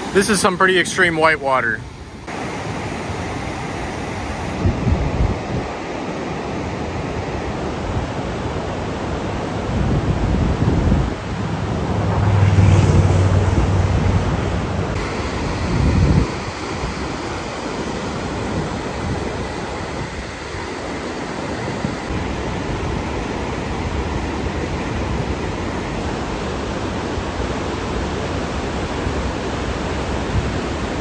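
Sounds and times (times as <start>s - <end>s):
wind on the microphone: 4.2s - 5.8s, 9.4s - 17.4s
whitewater rushing over boulders: 14.2s - 31.0s.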